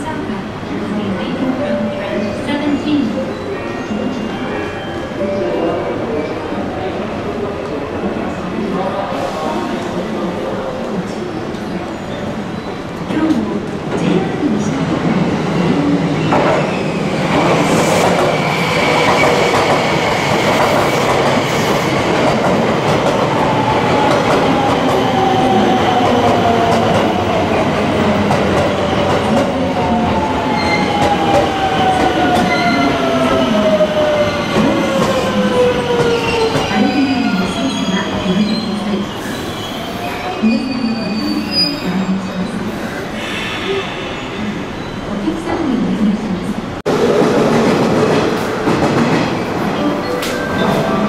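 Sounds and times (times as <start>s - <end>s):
train wheels rumbling on rail: 12.6s - 39.7s, 46.9s - 51.0s.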